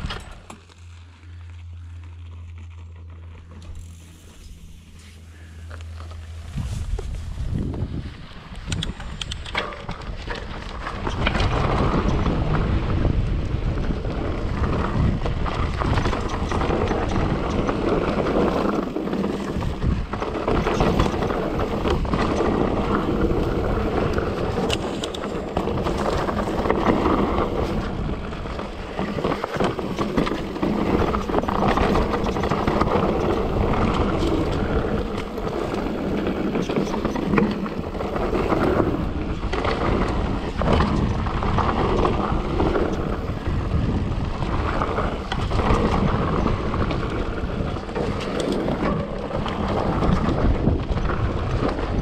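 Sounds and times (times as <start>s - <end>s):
bike rattling and clicking: 0.0s - 52.0s
bike tyres rumbling over dirt and rock: 0.0s - 52.0s.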